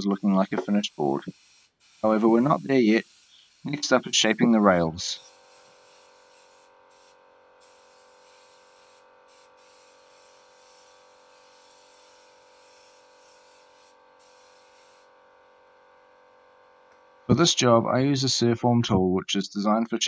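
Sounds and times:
faint hiss: 0:00.0 - 0:13.2
low electrical hum: 0:02.0 - 0:18.8.

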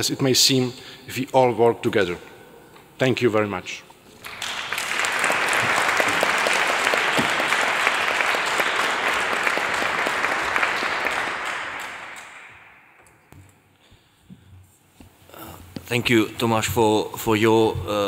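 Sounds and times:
audience clapping: 0:04.1 - 0:13.4.

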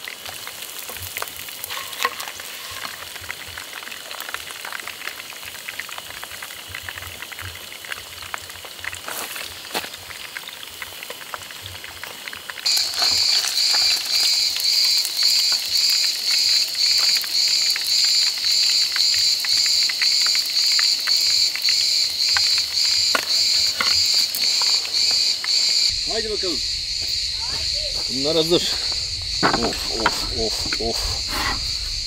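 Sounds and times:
oil sizzling in a pan: 0:00.0 - 0:30.9
insect pulsing song: 0:12.7 - 0:32.0.

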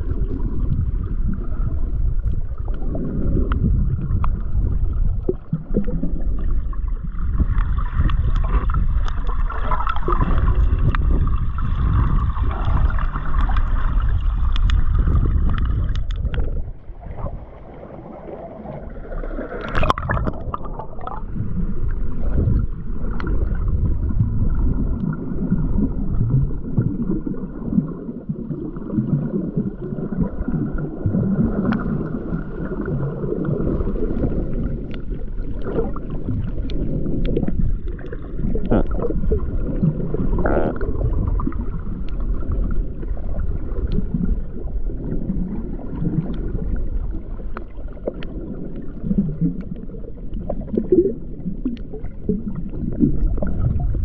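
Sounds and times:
muffled underwater sloshing: 0:00.0 - 0:54.0
clicks and pops: 0:14.5 - 0:16.7, 0:19.6 - 0:21.2.

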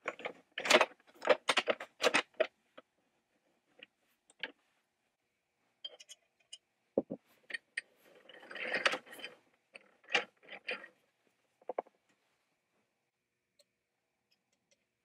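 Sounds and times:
metal gears scraping and rattling: 0:08.0 - 0:11.0.

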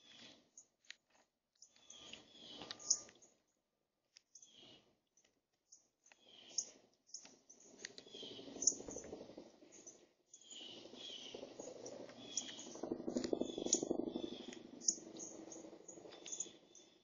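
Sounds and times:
bird pecking seeds: 0:00.0 - 0:03.4, 0:04.1 - 0:17.0
short high bird chirps: 0:01.7 - 0:03.1.

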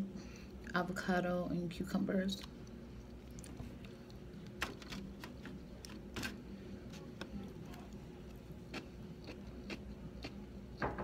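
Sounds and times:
low room hum: 0:00.0 - 0:11.0
wet chewing noises: 0:02.4 - 0:04.6.

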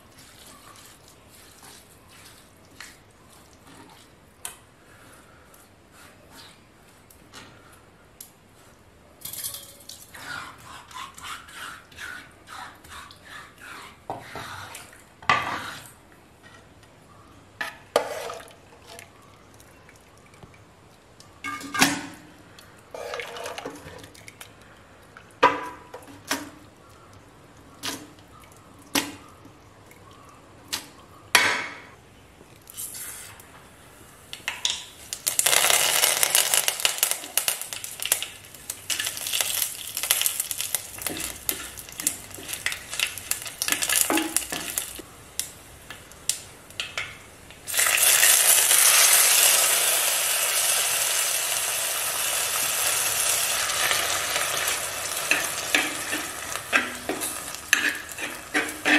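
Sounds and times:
pots and utensils knocking: 0:55.3 - 0:58.9.

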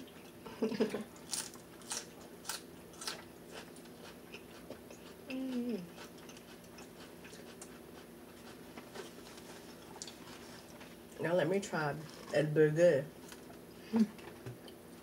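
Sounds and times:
wet chewing and lip-smacking: 0:01.2 - 0:10.9
person humming: 0:05.3 - 0:06.0, 0:13.8 - 0:14.2.

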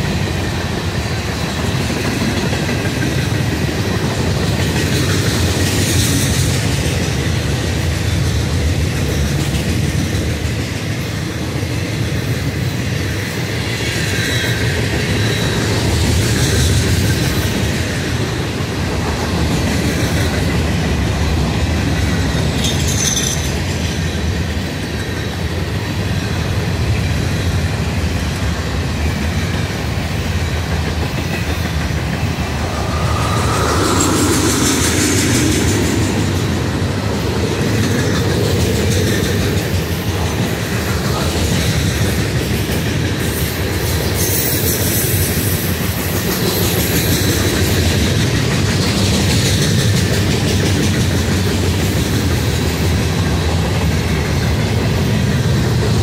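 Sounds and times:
train wheels clattering over rail joints: 0:33.8 - 0:56.0.

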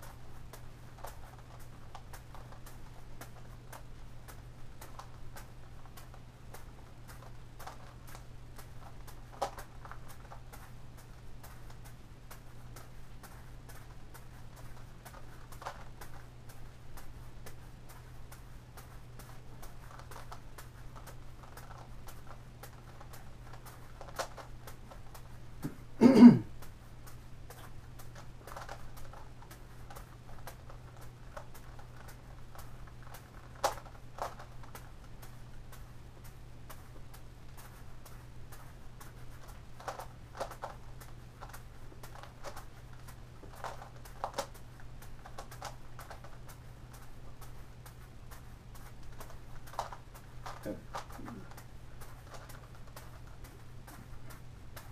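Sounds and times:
steady low hum: 0:00.0 - 0:54.9
person coughing: 0:26.0 - 0:26.5.

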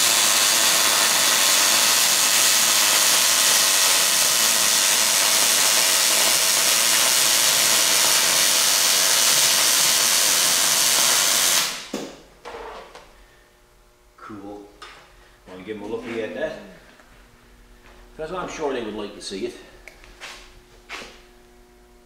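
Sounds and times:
welding arc sizzling: 0:00.0 - 0:13.0.

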